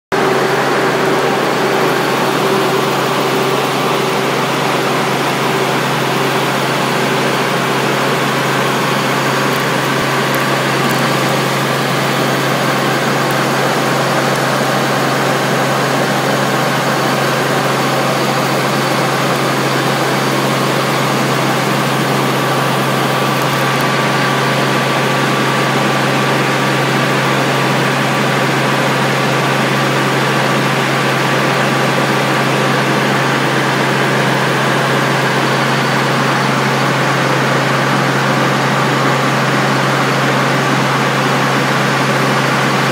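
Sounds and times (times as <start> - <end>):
helicopter cabin drone: 0.1 - 42.9.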